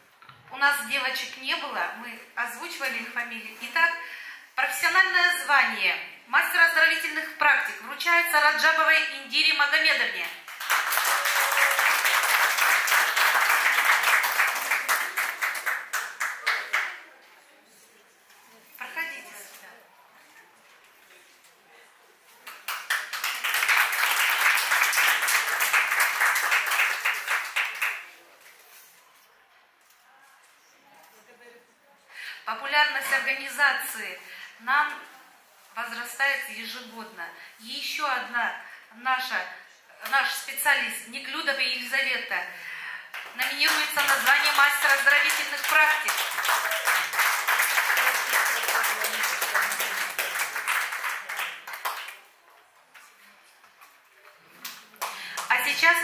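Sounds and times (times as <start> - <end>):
audience applauding: 10.4 - 17.1, 22.5 - 28.2, 43.2 - 52.3.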